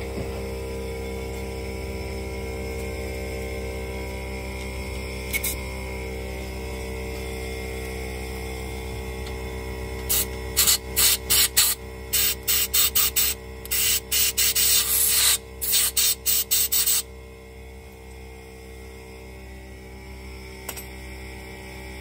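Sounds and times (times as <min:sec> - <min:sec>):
compressed air gun hissing blasts: 0:10.1 - 0:17.0.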